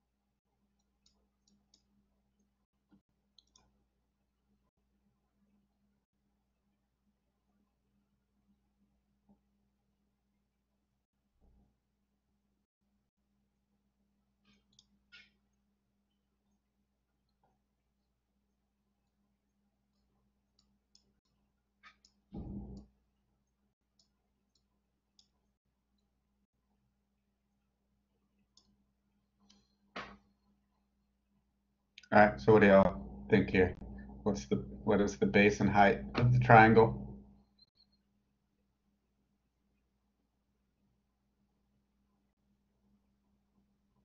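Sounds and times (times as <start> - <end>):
faint clicks: 2.9 - 3.7
brief low thud: 22.4 - 22.8.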